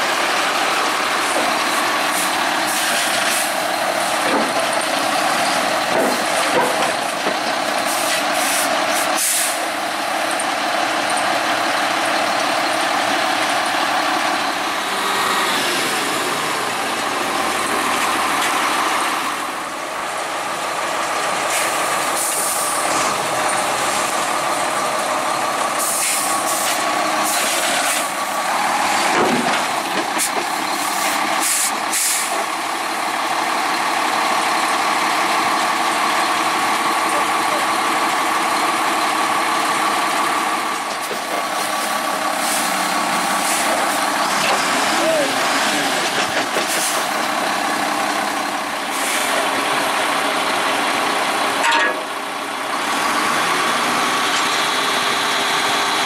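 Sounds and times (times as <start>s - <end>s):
heavy diesel engine running: 0.0s - 56.0s.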